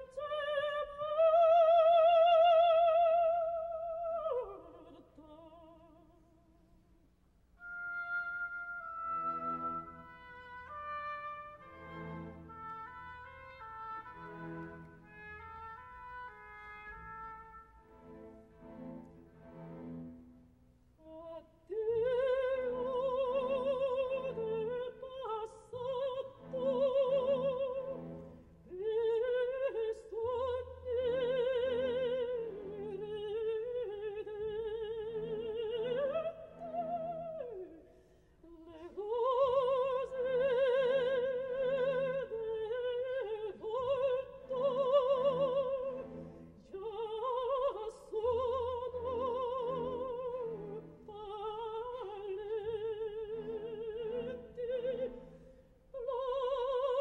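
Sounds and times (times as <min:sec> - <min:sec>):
operatic soprano singing: 0:00.0 - 0:06.4, 0:21.0 - 0:57.0
soft orchestra: 0:00.0 - 0:06.4, 0:07.4 - 0:57.0.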